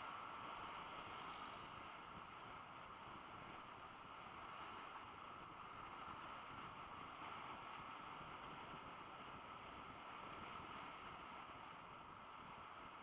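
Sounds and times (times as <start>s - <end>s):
wind and road noise: 0.0s - 13.0s.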